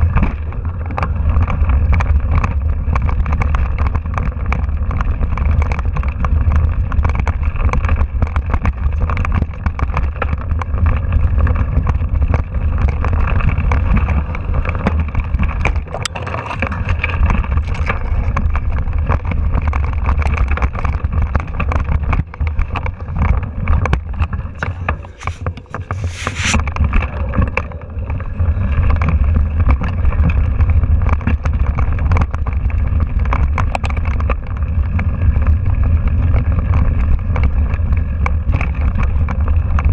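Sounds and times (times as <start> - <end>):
bike rattling over rough trail: 0.0 - 39.9
brief hiss: 25.1 - 26.6.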